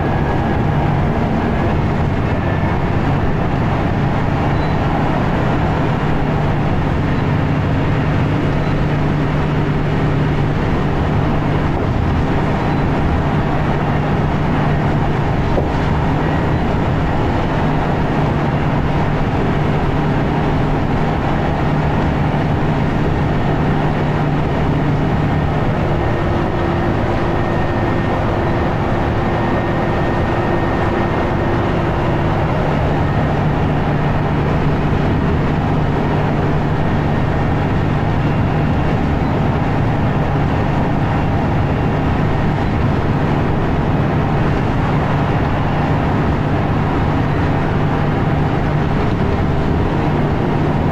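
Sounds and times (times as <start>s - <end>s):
bus diesel engine working hard: 0.0s - 50.9s
road and tyre noise: 0.0s - 50.9s.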